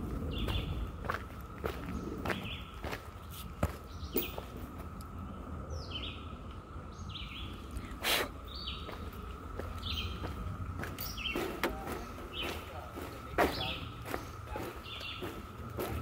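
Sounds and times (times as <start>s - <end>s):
footsteps on dirt trail: 0.0s - 5.0s, 8.6s - 16.0s
cicada chorus humming: 0.0s - 16.0s.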